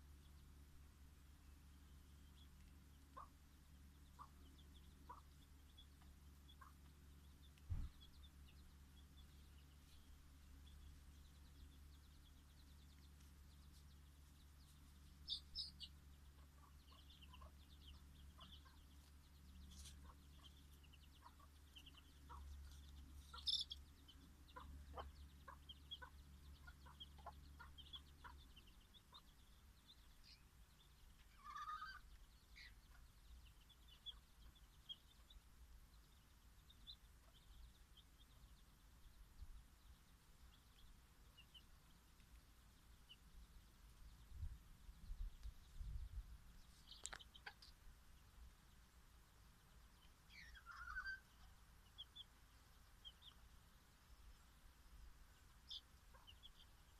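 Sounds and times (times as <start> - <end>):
chicks peeping: 0.0 - 56.9
hen clucking: 2.7 - 8.4, 15.1 - 29.4, 31.1 - 35.3, 46.8 - 47.8, 50.3 - 52.3, 55.6 - 56.8.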